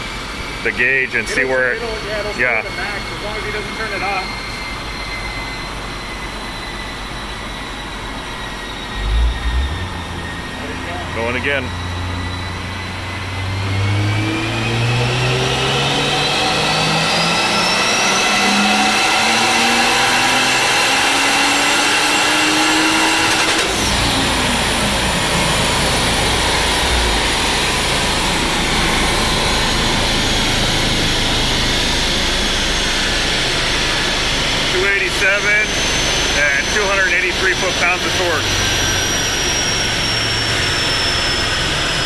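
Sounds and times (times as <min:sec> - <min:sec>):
car engine revving at full throttle: 0:00.0 - 0:42.0
steady rushing noise: 0:24.5 - 0:30.0.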